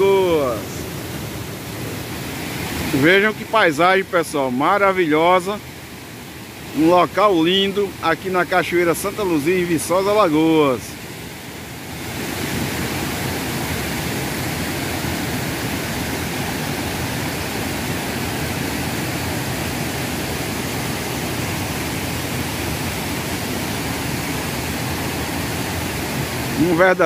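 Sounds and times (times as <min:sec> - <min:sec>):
water rushing over rocks: 0:00.0 - 0:27.0.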